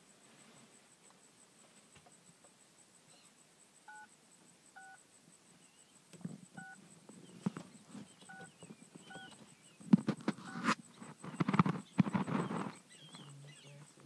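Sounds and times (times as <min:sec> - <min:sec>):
insect chirping: 0:00.0 - 0:14.0
rustles and soft knocks: 0:06.1 - 0:14.0.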